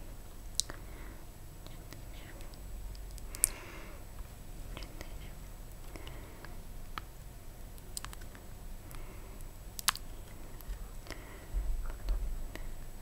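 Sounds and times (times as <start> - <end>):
fingernails clicking on silicone pad: 7.9 - 9.0
low handling rumble: 9.6 - 13.0.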